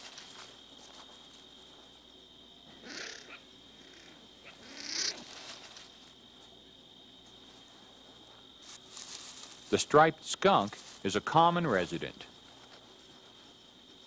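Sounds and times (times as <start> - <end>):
high-pitched insect chorus: 0.0 - 14.0
skunk snuffling: 2.6 - 9.8.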